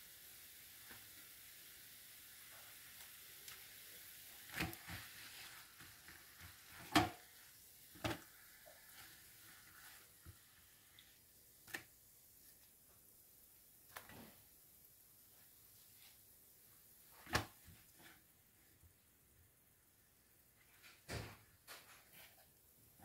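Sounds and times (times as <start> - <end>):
sauce sizzling on a grill: 0.0 - 12.7.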